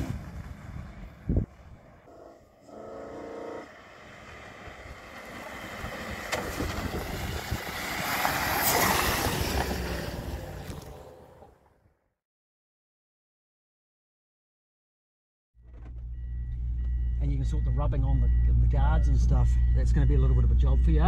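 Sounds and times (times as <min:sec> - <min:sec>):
tyres on gravel: 0:00.0 - 0:11.7
van engine passing by: 0:00.0 - 0:11.7.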